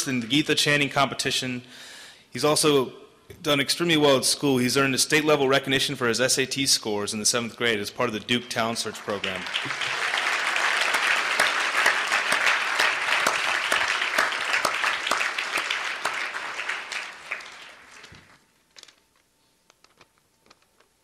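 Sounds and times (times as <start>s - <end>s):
audience applauding: 8.5s - 18.4s.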